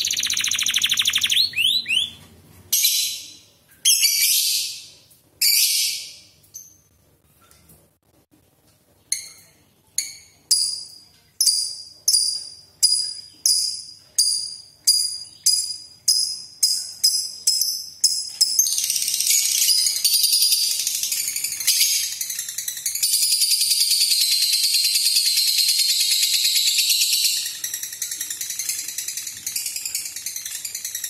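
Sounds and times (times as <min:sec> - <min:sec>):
bird rattling trill: 0:00.0 - 0:02.2
songbird singing high notes: 0:00.0 - 0:02.2.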